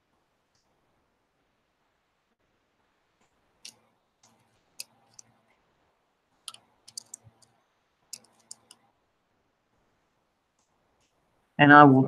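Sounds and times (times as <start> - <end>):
light clicks and taps on metal: 6.5 - 7.5, 8.1 - 8.8.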